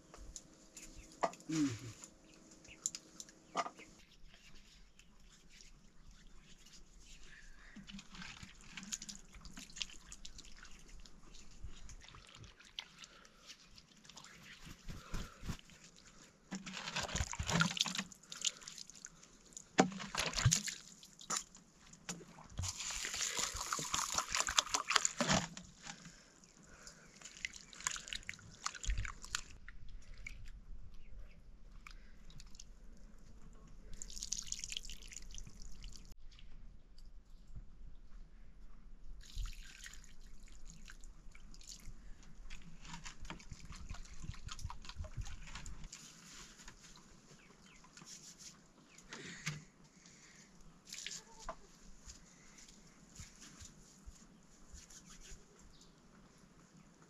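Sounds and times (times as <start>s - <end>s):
water splashing and dripping: 7.8s - 13.2s, 17.1s - 25.4s, 27.2s - 30.4s.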